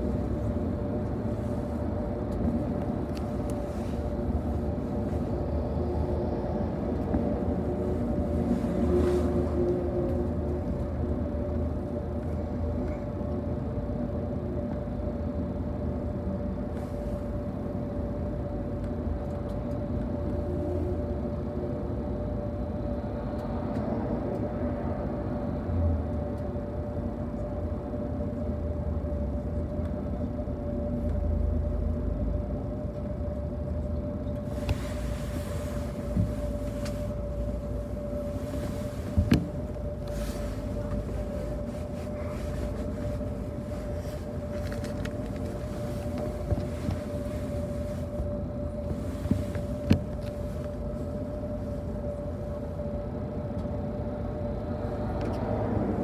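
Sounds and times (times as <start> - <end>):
bus engine and road rumble: 0.0 - 56.0
constant whine: 0.0 - 56.0
knocks and rattles from bus body: 39.0 - 39.8.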